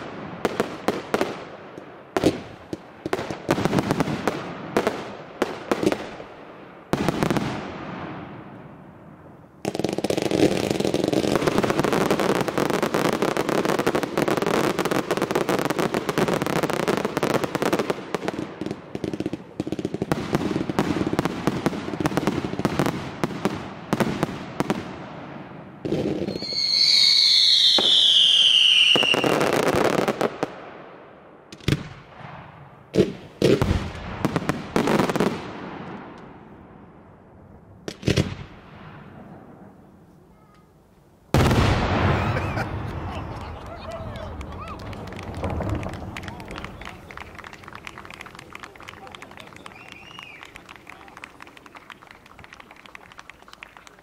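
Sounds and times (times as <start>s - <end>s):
firework crackling: 0.0s - 30.9s, 41.3s - 54.0s
firework bangs: 0.0s - 37.0s, 37.8s - 39.8s, 41.3s - 54.0s
firework whistle falling in pitch: 49.4s - 51.0s.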